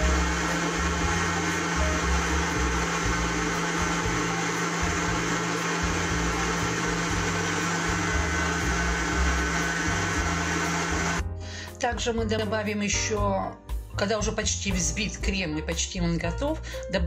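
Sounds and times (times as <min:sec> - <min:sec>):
stand mixer whipping butter: 0:00.0 - 0:11.2.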